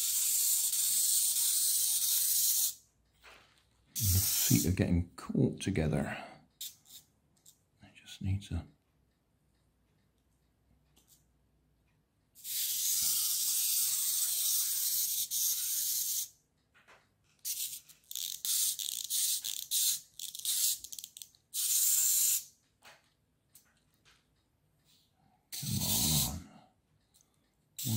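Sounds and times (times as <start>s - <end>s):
clockwork toy motor whirring: 0.0s - 2.8s, 4.0s - 4.7s, 12.4s - 16.4s, 17.4s - 22.5s, 25.5s - 26.4s.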